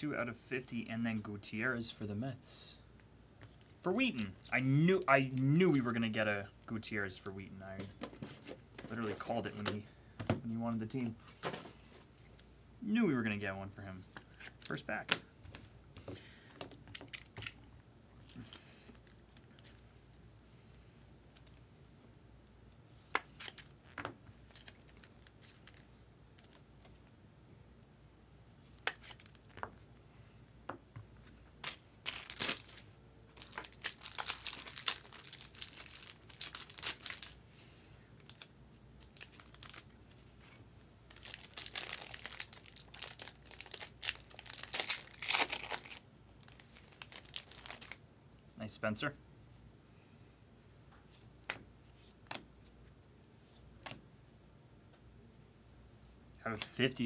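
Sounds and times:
foil wrapper tearing and crinkling: 31.6s - 32.8s, 33.4s - 37.4s, 39.1s - 39.9s, 41.1s - 48.0s.

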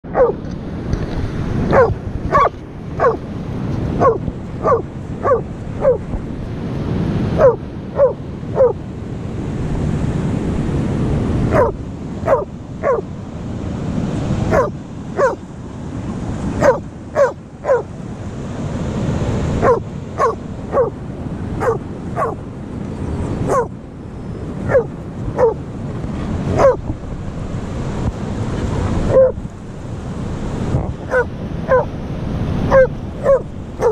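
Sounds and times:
surf rushing: 0.0s - 33.9s
dogs barking: 0.1s - 0.4s, 1.7s - 3.2s, 4.0s - 6.1s, 7.4s - 8.8s, 11.5s - 13.1s, 14.5s - 15.4s, 16.6s - 17.9s, 19.6s - 21.0s, 21.6s - 22.4s, 23.4s - 23.8s, 24.6s - 25.6s, 26.5s - 26.8s, 29.1s - 29.4s, 31.0s - 31.9s, 32.7s - 33.9s.

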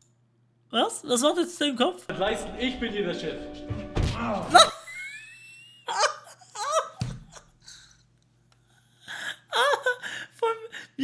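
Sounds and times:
man laughing hard: 4.4s - 7.6s.

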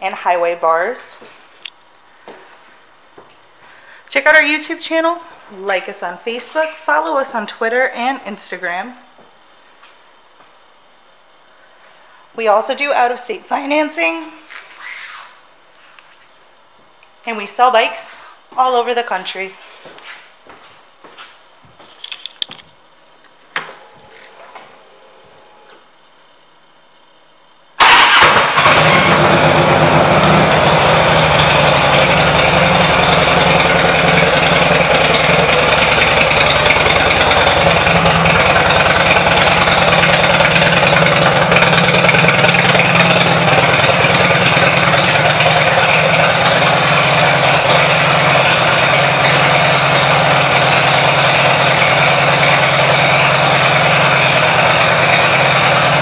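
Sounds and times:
motorcycle engine idling: 28.1s - 56.0s.

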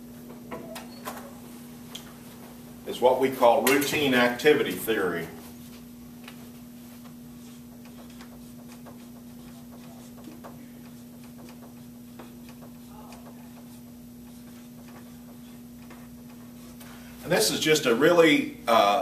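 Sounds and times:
steady hum: 0.0s - 19.0s
marker scratching on whiteboard: 6.3s - 16.8s.

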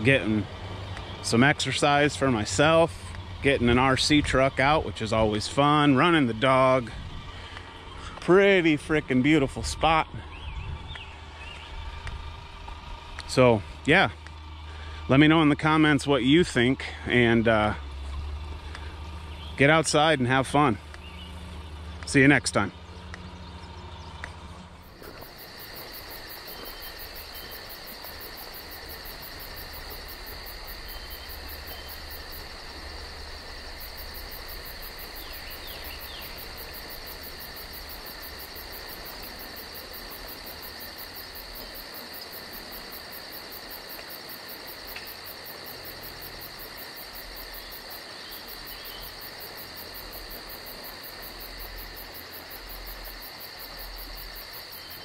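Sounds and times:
crickets trilling: 0.0s - 24.2s, 24.8s - 55.0s
low rumble: 0.0s - 27.3s
insects buzzing: 0.0s - 55.0s.

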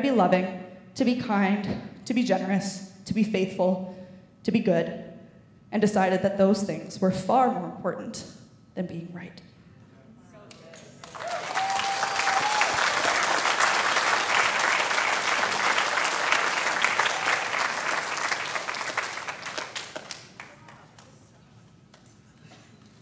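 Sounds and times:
audience applauding: 11.0s - 21.2s.

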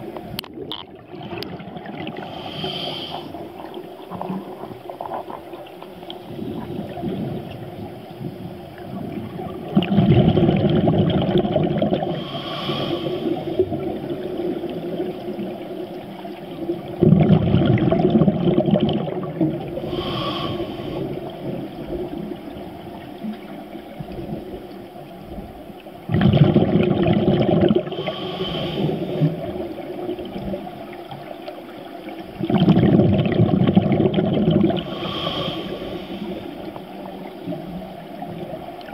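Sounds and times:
exhaled bubbles rushing: 0.0s - 2.6s, 3.2s - 12.2s, 13.3s - 20.1s, 26.0s - 31.4s, 32.0s - 38.9s
regulator hiss on inhale: 2.2s - 3.5s, 12.1s - 13.7s, 19.8s - 21.5s, 27.9s - 29.5s, 34.8s - 37.2s.

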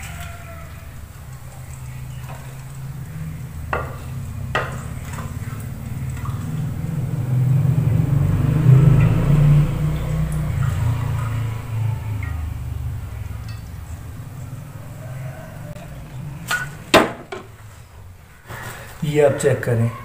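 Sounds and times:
low steady hum: 0.0s - 18.4s.

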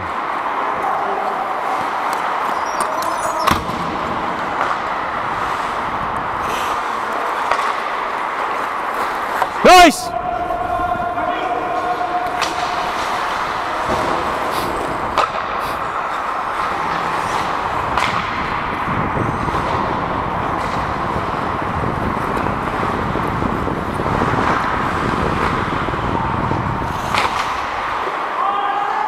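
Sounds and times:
skate blades on ice: 0.0s - 29.0s.

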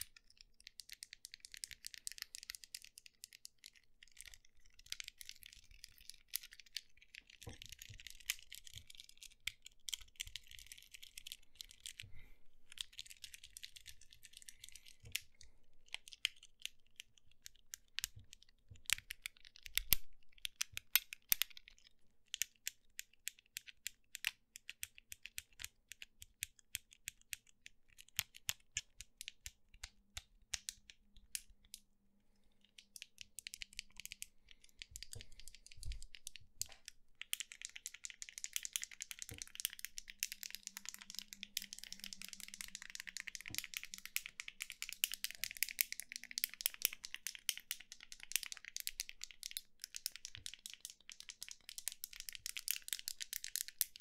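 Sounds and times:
fidget cube clicking: 12.7s - 31.8s, 32.7s - 54.0s.

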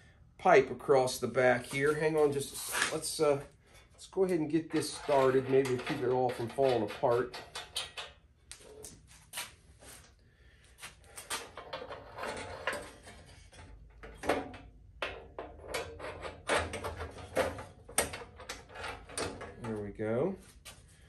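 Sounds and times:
metal pipe clinks and knocks: 4.7s - 8.2s.

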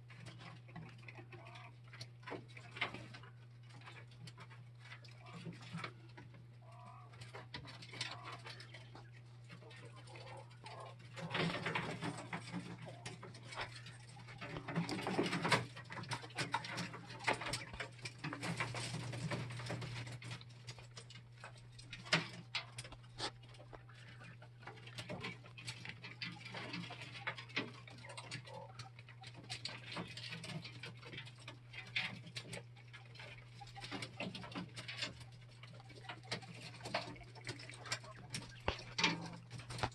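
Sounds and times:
pecking clicks and scratches: 0.0s - 39.9s
steady low hum: 0.0s - 39.9s
quail calling softly: 0.5s - 1.9s, 4.9s - 15.2s, 22.6s - 29.9s, 32.6s - 39.9s.

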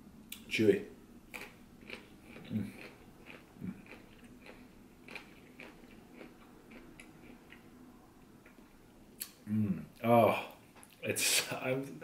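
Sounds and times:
chewing fibrous fruit rind: 1.3s - 7.7s.

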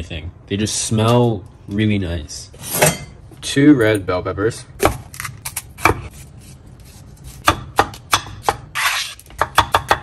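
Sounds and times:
knife scraping across board: 8.7s - 9.3s.

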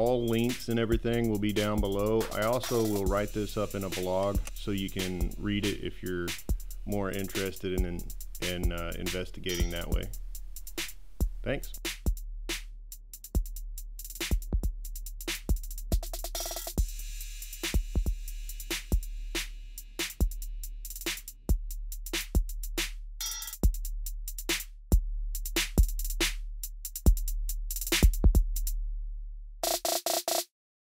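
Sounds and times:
drum machine beat: 0.0s - 28.8s, 29.6s - 30.5s
sustained deep bass: 2.9s - 11.8s.

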